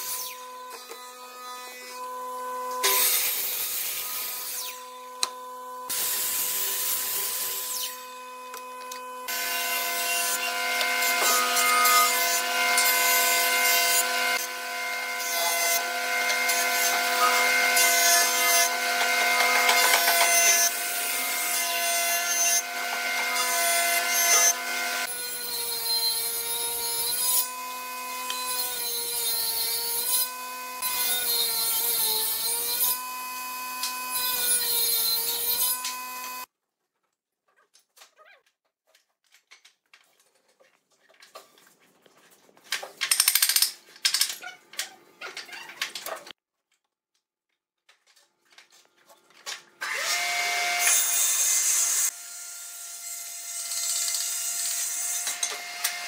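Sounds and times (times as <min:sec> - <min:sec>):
miter saw cross-cutting wood: 0:00.0 - 0:36.5, 0:49.6 - 0:56.0
jointer planing wood: 0:08.5 - 0:32.7
table saw ripping wood: 0:09.2 - 0:25.2, 0:49.2 - 0:52.2.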